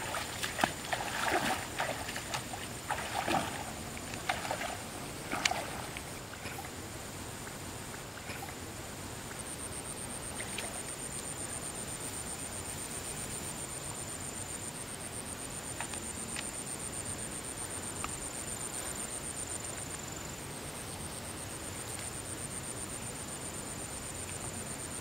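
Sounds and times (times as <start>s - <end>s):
wading splashes in water: 0.0s - 6.8s, 10.3s - 10.9s
faint high pulsing buzz: 0.0s - 25.0s.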